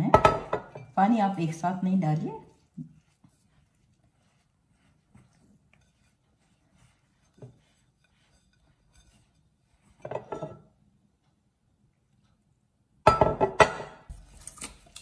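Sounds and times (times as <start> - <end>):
hands kneading dough: 0.0 - 11.5.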